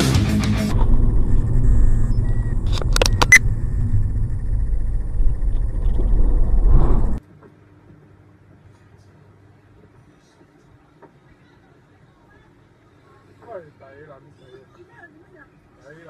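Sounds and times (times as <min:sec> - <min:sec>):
heavy metal guitar music: 0:00.0 - 0:02.7
road and engine rumble: 0:00.0 - 0:07.2.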